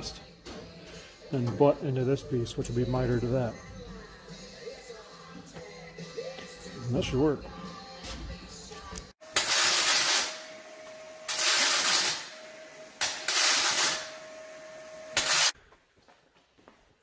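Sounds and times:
steady welder tone: 9.1 - 15.6
arc welding hiss: 9.2 - 14.3, 15.0 - 15.6.

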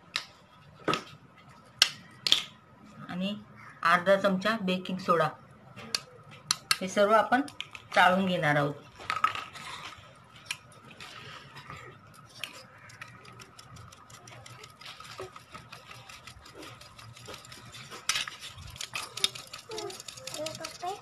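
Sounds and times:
sieve clicking and rattling: 12.0 - 21.0.

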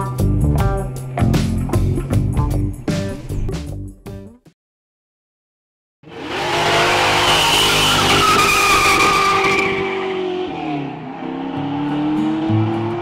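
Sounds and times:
car engine accelerating: 6.1 - 13.0
tyres squealing: 7.2 - 10.2.

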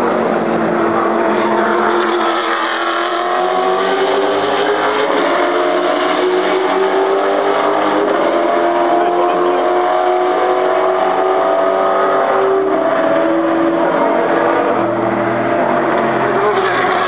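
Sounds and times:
racing car engines passing: 0.0 - 17.0.

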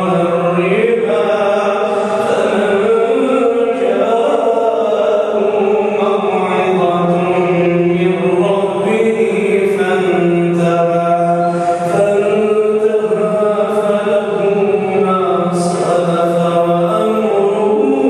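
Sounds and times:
man chanting into a microphone: 0.0 - 18.0.

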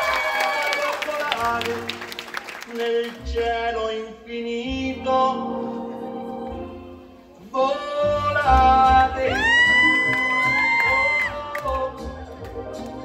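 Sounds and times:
crowd cheering and clapping: 0.0 - 3.3, 8.4 - 13.0.

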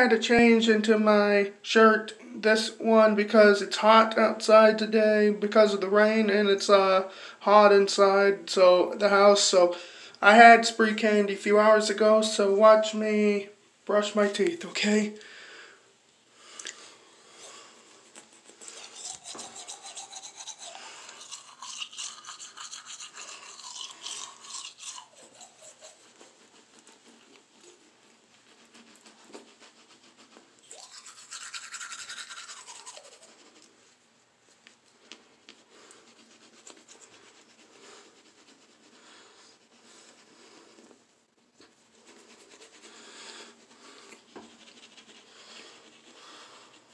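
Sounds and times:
toothbrush scrubbing teeth: 16.6 - 46.9.

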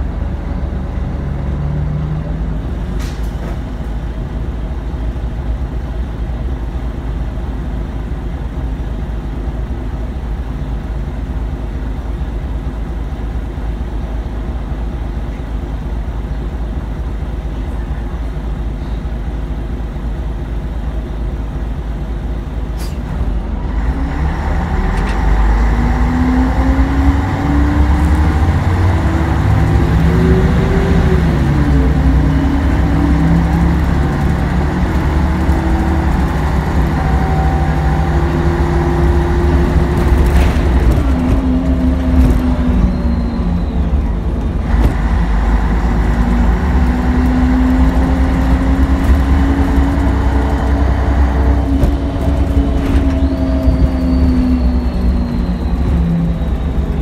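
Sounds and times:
bus engine: 0.0 - 57.0.

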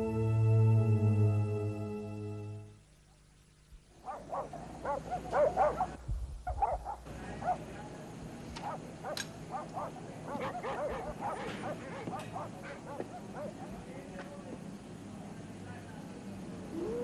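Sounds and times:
dogs barking and yipping: 4.0 - 7.7, 8.6 - 13.9.

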